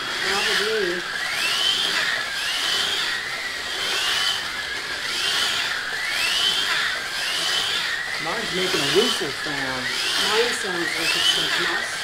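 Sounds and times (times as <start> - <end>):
slot car motors whining: 0.0 - 12.0.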